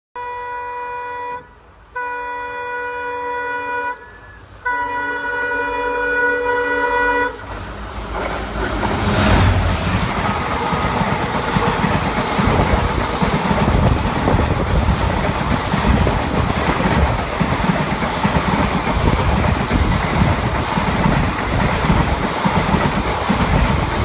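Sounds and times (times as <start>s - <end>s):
train horn blasts: 0.2s - 7.7s
train wheels rumbling on rails: 5.3s - 24.0s.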